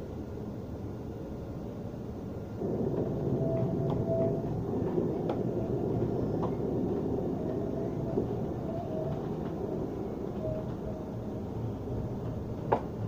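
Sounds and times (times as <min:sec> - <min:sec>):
tram wheels rumbling on rails: 0:01.5 - 0:13.0.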